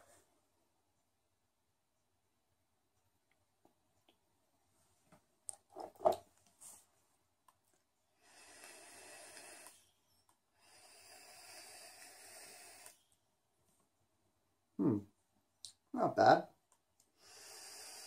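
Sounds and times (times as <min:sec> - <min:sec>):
vape coil hissing: 0:08.2 - 0:09.8, 0:10.6 - 0:13.0, 0:17.2 - 0:18.0.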